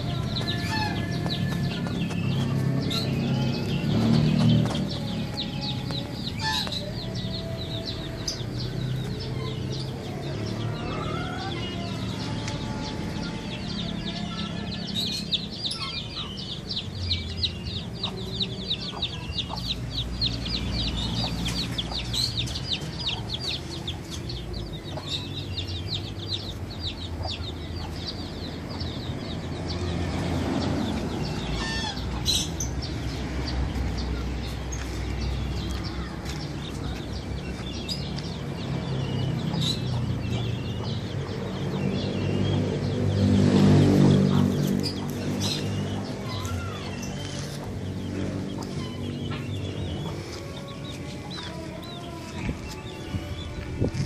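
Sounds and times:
chickens clucking: 0.0s - 16.8s, 17.4s - 29.8s, 43.6s - 54.0s
small birds chirping: 0.0s - 54.0s.

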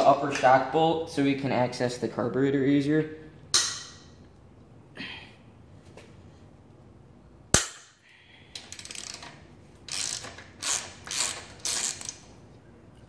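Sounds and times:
ratchet clicking: 8.6s - 12.3s.

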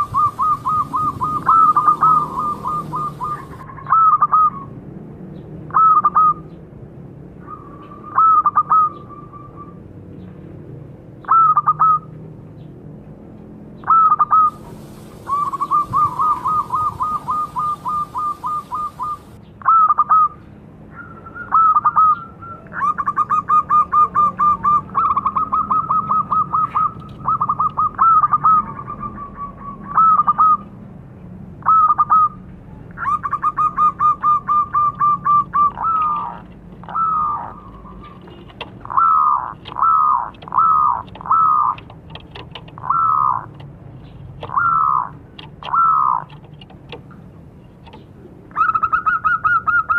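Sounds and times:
dove cooing: 0.0s - 4.6s, 13.9s - 20.2s, 33.0s - 43.6s, 44.4s - 46.8s
faint hiss: 14.5s - 19.4s.

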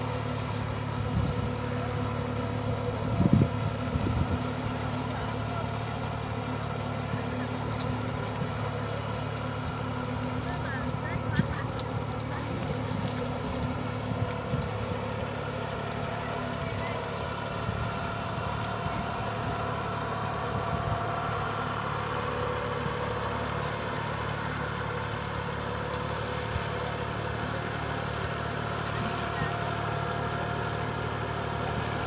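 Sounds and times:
tractor engine running: 0.0s - 32.0s.

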